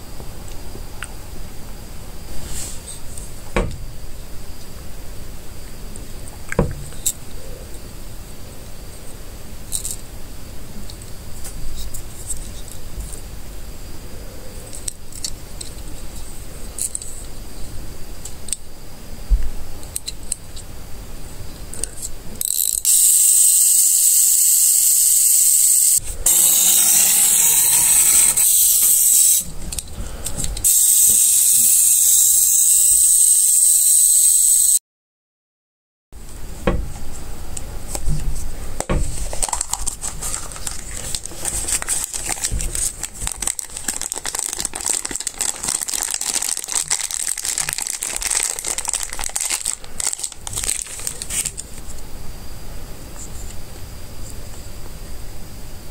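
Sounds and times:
toy motor gears whirring: 22.4 - 29.9, 30.6 - 34.8, 39.3 - 51.6
plastic toys clicking and rattling: 39.2 - 51.7.

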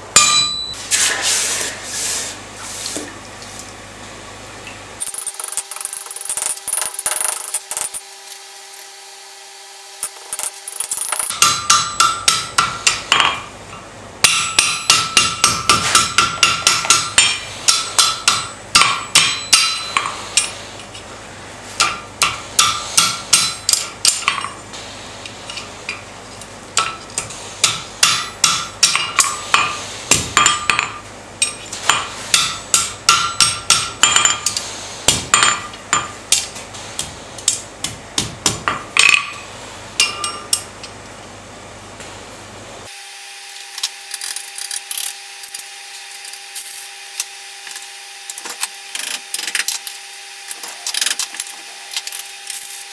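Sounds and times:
hammer striking metal on anvil: 0.1 - 0.8, 11.0 - 13.5, 14.2 - 20.6, 21.8 - 24.6, 26.8 - 36.5, 40.0 - 40.7.

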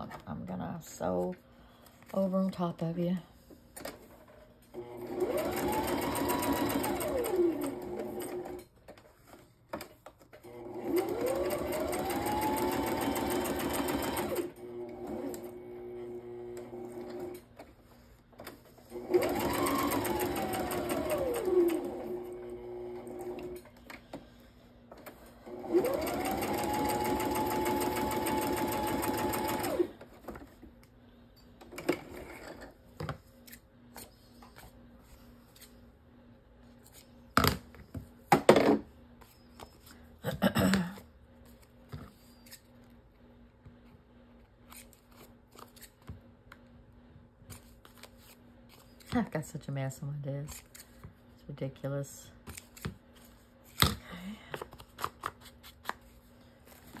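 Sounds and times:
sewing machine stitching: 4.8 - 8.6, 10.4 - 15.6, 18.9 - 23.6, 25.5 - 30.0.

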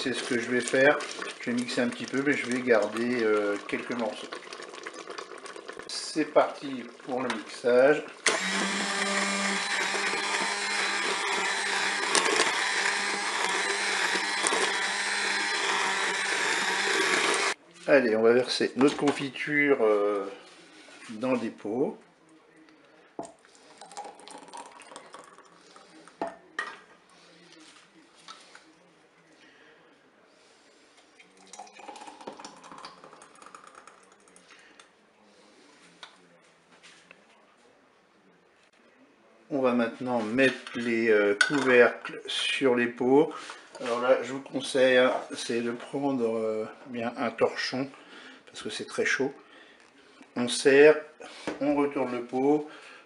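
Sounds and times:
stick blender whirring: 8.2 - 17.6.

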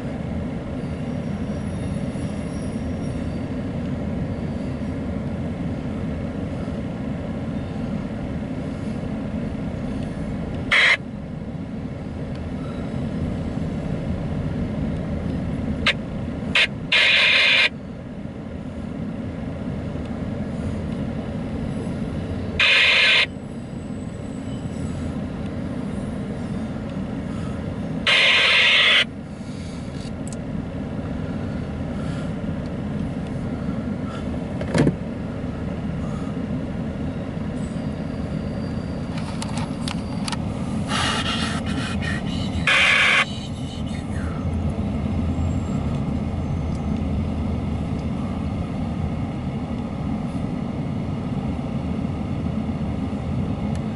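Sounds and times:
freight train cars rolling rumble: 0.0 - 53.9
loud burst of train noise: 9.8 - 11.2, 15.8 - 18.0, 21.5 - 30.0, 35.1 - 53.5.

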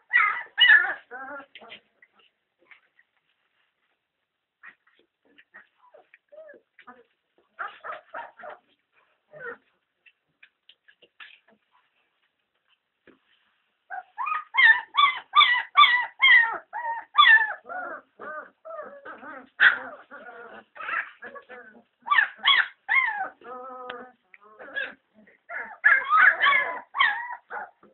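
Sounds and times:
puppies whining and yelping: 0.0 - 1.8, 4.6 - 9.7, 13.9 - 27.9.

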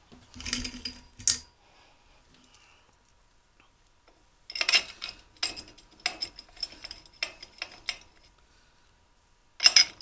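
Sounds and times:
metal bolts clinking and rattling: 4.5 - 8.2, 9.6 - 10.0.

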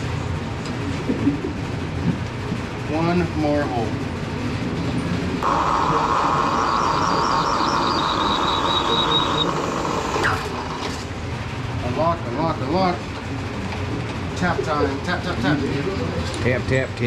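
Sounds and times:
milling machine drilling: 5.4 - 11.0
high thin squeal from drill bit: 5.7 - 10.6.

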